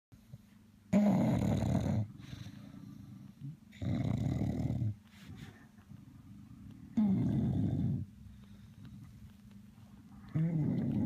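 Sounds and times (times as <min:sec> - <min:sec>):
dog snoring: 0:00.9 - 0:05.0, 0:06.8 - 0:08.2, 0:10.2 - 0:11.0.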